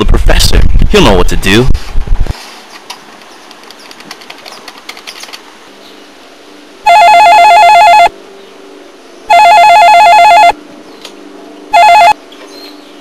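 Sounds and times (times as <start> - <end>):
desk phone ringing: 6.8 - 8.1, 9.3 - 10.6, 11.7 - 12.2.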